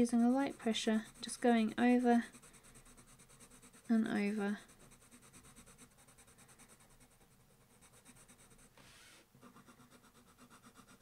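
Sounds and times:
colored pencil scratching on paper: 0.0s - 11.0s.

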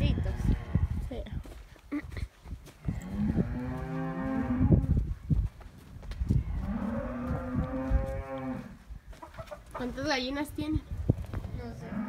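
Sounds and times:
cow mooing: 6.6s - 8.7s.

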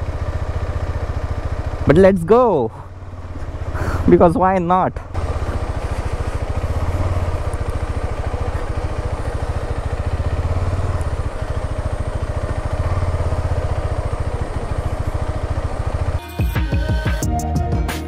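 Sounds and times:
motorcycle engine at low revs: 0.0s - 16.2s.

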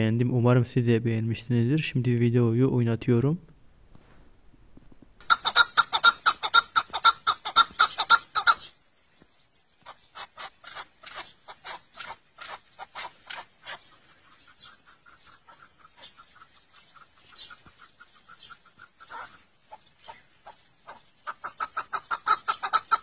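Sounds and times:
partridge clucking calls: 5.2s - 23.0s.

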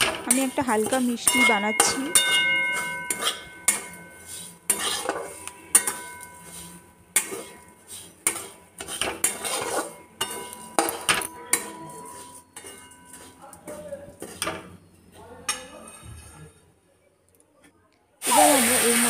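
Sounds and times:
metal spatula scraping pan: 0.0s - 14.7s.

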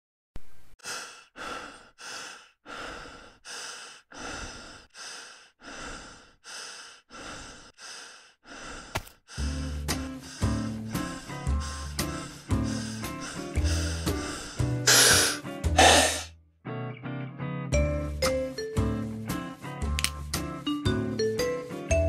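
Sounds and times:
person panting: 0.8s - 16.3s
music: 9.4s - 22.0s.

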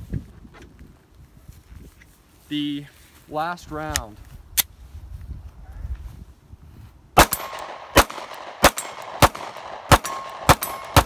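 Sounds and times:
pistol shots: 7.2s - 11.0s
steel target plate ringing: 10.0s - 11.0s.

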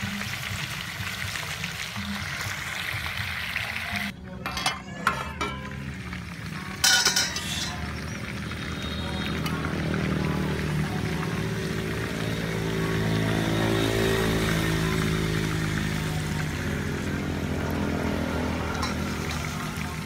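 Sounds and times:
spoon clinking on metal pot lid: 4.4s - 5.8s, 6.8s - 7.9s, 18.7s - 19.4s
pot lid scraping clatter: 6.8s - 7.8s.

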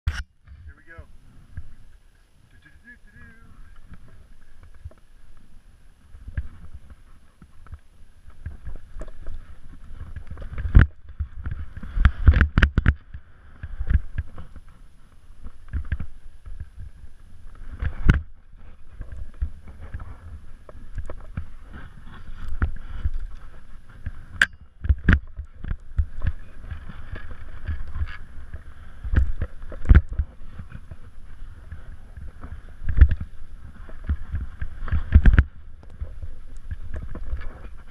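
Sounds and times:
skis thumping on bumps: 3.8s - 37.9s
skis swishing through snow: 13.3s - 24.3s.

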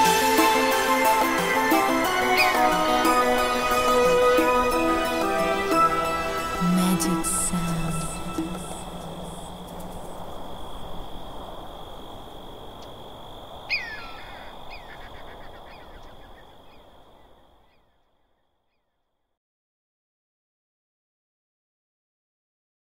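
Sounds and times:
thin high tone: 0.0s - 11.4s
steady rushing noise: 0.0s - 17.1s
bird calls falling in pitch: 13.7s - 16.8s.

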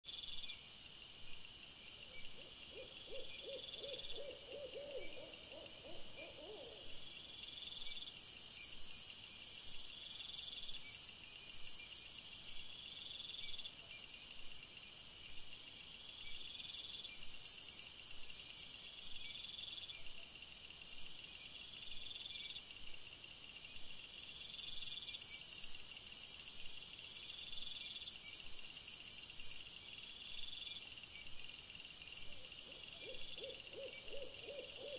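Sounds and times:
crickets trilling: 23.4s - 34.9s.

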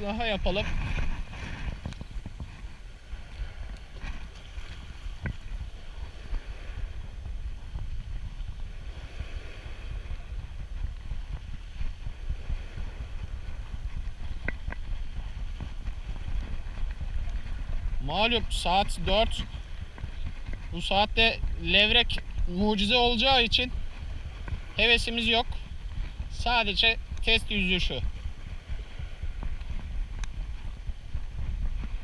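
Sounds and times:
small waves washing: 0.0s - 32.0s
wind buffeting microphone: 0.0s - 32.0s
faint ticks: 29.4s - 30.4s.

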